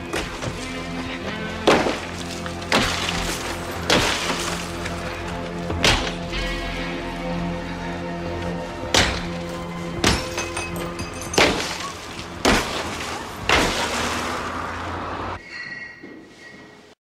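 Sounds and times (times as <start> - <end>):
windscreen glass breaking: 1.7 - 5.0, 10.0 - 14.5.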